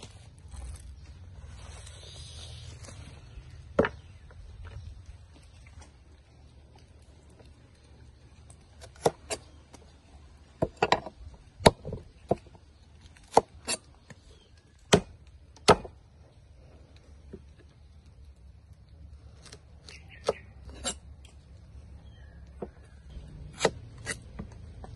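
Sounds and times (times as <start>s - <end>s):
cleaver chopping on wooden board: 14.9s - 16.0s.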